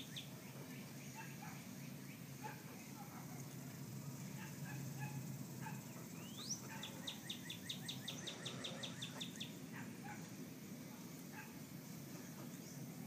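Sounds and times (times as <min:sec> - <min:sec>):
songbird fast trill: 0:00.0 - 0:02.3, 0:05.8 - 0:09.6.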